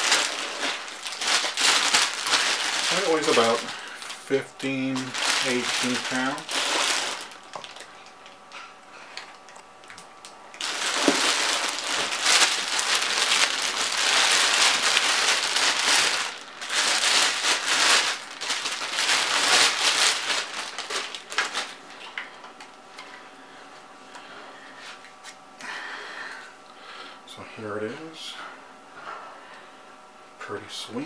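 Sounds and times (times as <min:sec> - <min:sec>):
plastic bag crinkling: 0:00.0 - 0:08.3, 0:10.6 - 0:22.2.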